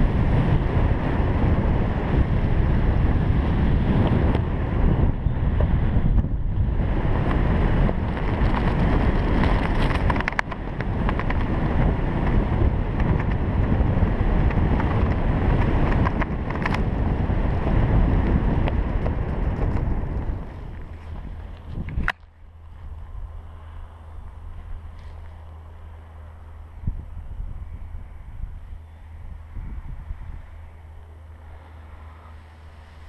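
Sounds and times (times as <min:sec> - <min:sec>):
wind buffeting microphone: 0:00.0 - 0:33.0
canopy flaps: 0:07.0 - 0:22.1.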